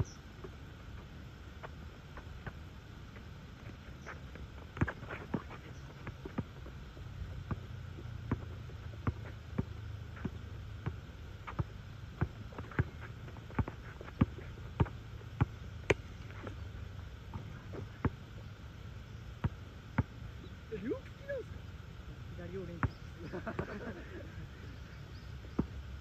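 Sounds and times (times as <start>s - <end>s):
basketball bouncing on asphalt: 0.4s - 18.4s, 19.4s - 20.2s, 22.6s - 23.8s, 25.4s - 25.8s.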